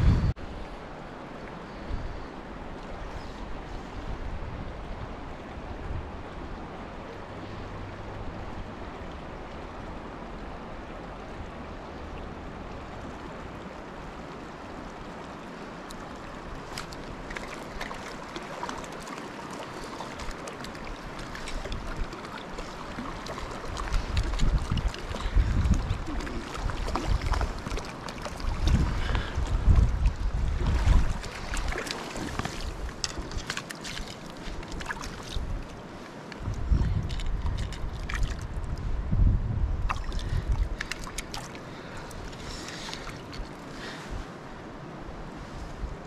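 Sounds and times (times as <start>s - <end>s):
wind on microphone: 0.0s - 0.7s, 21.0s - 44.3s
river current rushing: 0.0s - 38.7s, 39.9s - 46.0s.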